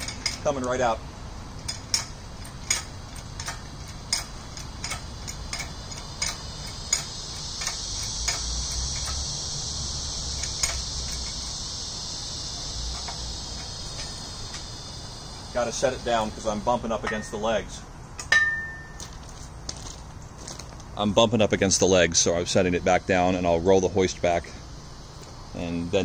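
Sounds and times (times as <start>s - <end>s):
insect chirring: 0.0s - 26.0s
hoist pump lever clicking: 1.6s - 9.3s.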